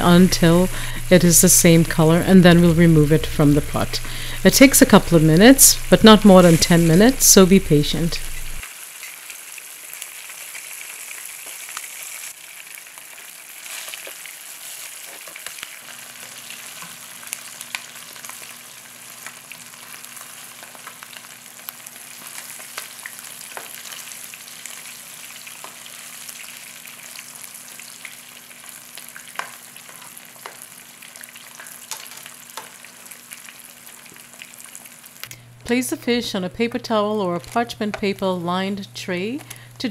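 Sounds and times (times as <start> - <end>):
fish frying in hot oil: 0.1 - 35.3
oil crackling and popping: 8.2 - 35.4.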